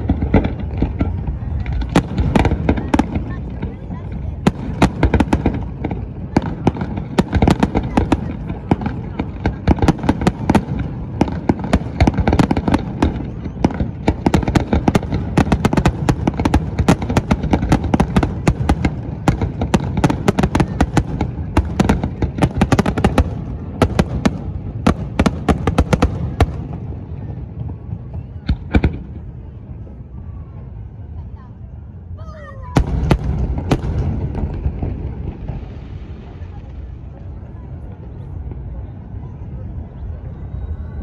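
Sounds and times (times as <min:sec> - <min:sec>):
firework bursts and crackling: 0:00.0 - 0:30.1, 0:32.6 - 0:39.8
sharp firework bangs: 0:32.8 - 0:36.8.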